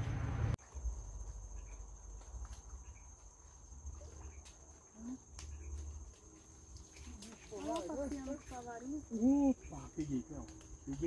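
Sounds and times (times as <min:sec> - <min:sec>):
low rumble: 0:00.0 - 0:01.0.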